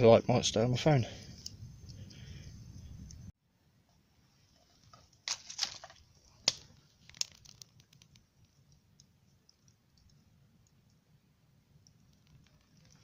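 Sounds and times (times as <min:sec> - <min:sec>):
sticks crackling in a stove: 0:01.1 - 0:03.3, 0:04.5 - 0:11.0, 0:11.7 - 0:13.0
rustling: 0:04.2 - 0:10.1.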